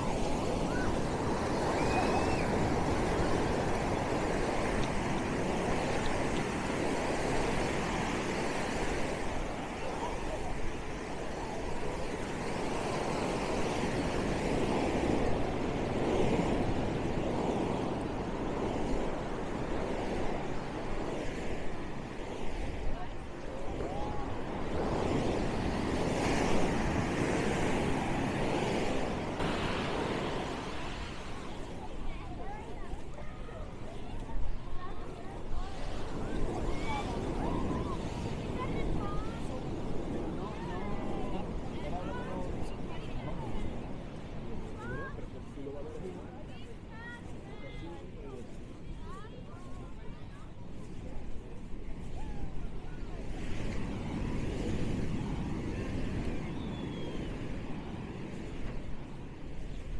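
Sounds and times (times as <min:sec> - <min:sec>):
ocean waves breaking: 0:00.0 - 0:59.9
wind rumbling on microphone: 0:00.0 - 0:59.9.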